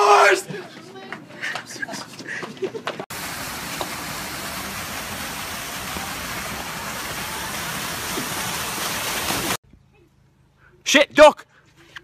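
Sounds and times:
water feature splashing: 0:03.1 - 0:09.6.

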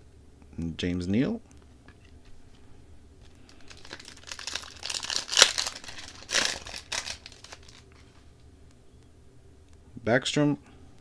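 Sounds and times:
wrapper crinkling: 0:03.2 - 0:08.2
wrapper ripping: 0:03.2 - 0:08.2.

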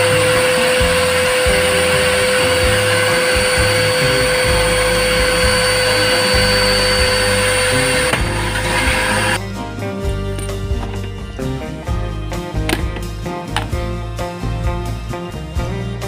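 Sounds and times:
vacuum cleaner motor whining: 0:00.0 - 0:09.4.

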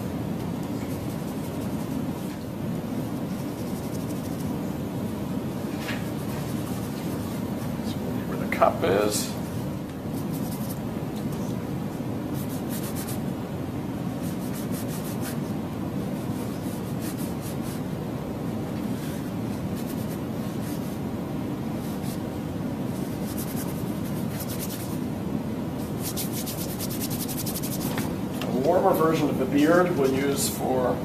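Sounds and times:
brush scrubbing on canvas: 0:00.8 - 0:02.3, 0:03.1 - 0:04.6, 0:06.0 - 0:07.6, 0:10.2 - 0:10.8, 0:12.4 - 0:13.2, 0:14.2 - 0:17.9, 0:19.0 - 0:21.0, 0:21.8 - 0:22.3, 0:22.9 - 0:25.0, 0:25.8 - 0:28.1.

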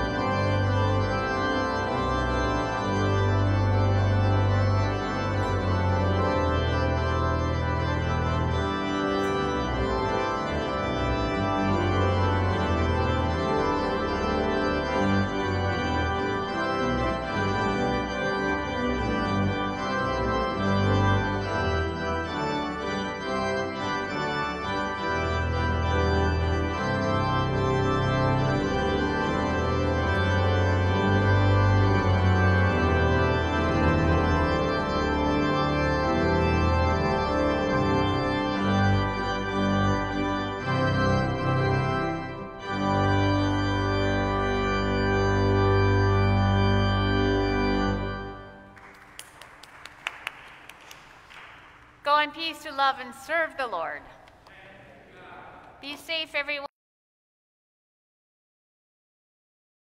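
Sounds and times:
organ chords: 0:00.0 - 0:55.2.

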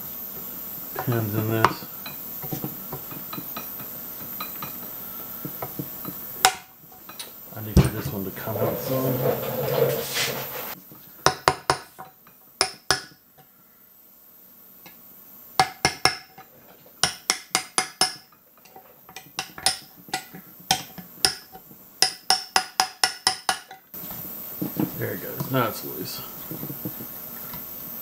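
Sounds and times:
small hammer tapping metal punch: 0:17.0 - 0:18.3, 0:19.1 - 0:23.8.

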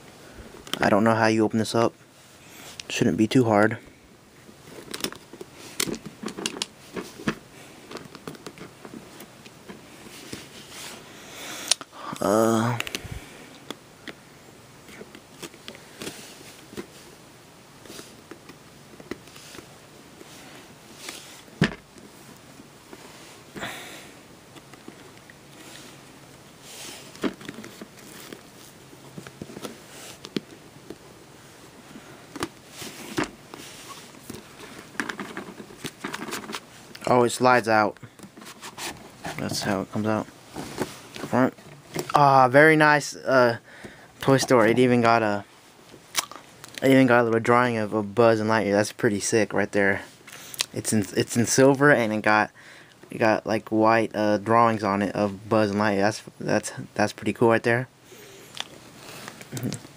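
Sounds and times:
rustling scrapes: 0:08.6 - 0:11.1, 0:26.6 - 0:30.3, 0:32.6 - 0:36.9, 0:38.3 - 0:41.9.

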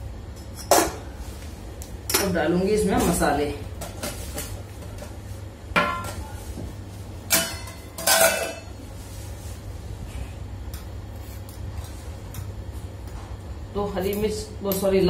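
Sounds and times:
metal lid and spoon clanking: 0:07.3 - 0:08.7.

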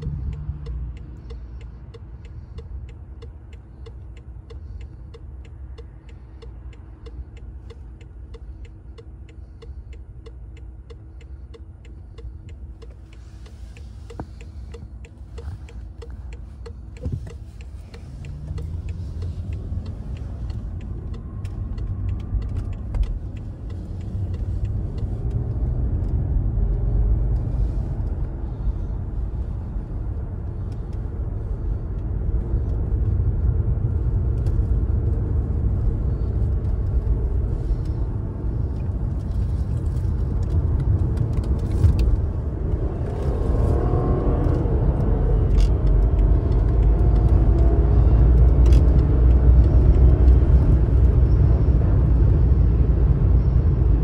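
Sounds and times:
regular ticking: 0:00.0 - 0:43.0
car engine rumble: 0:00.0 - 0:54.0
road noise: 0:00.0 - 0:54.0.

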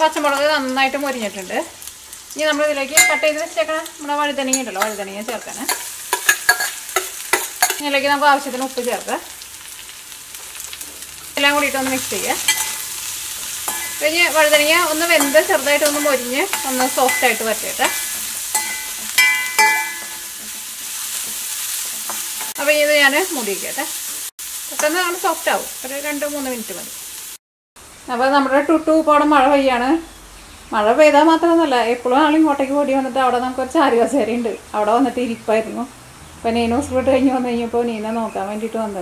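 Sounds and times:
vegetables sizzling: 0:00.0 - 0:39.0
metal spoon scraping a pan: 0:04.4 - 0:07.9, 0:11.6 - 0:22.7.

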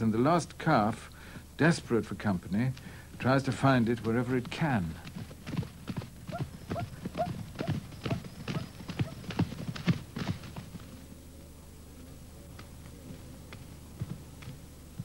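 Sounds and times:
hoofbeats on grass: 0:02.6 - 0:11.0, 0:12.5 - 0:15.0.

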